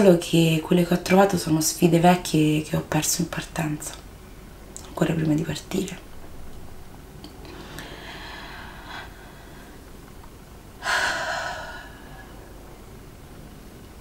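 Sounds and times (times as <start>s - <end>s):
woman breathing in: 7.4s - 9.9s, 10.8s - 12.6s.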